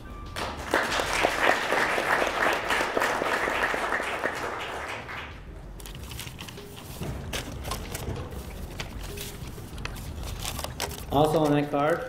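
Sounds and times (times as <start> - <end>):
audience applauding: 0.4 - 5.4.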